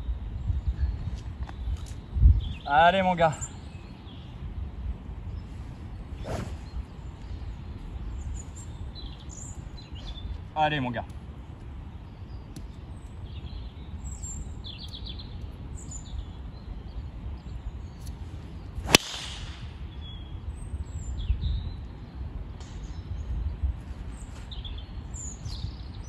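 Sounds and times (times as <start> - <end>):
birds chirping: 0.6 - 26.0
golf driver striking ball: 18.9 - 19.6.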